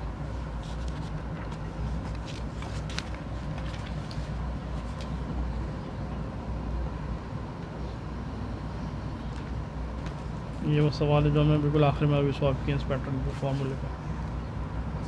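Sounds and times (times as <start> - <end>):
faint hum: 0.0 - 15.0
paper clicks and rustles: 0.3 - 5.4.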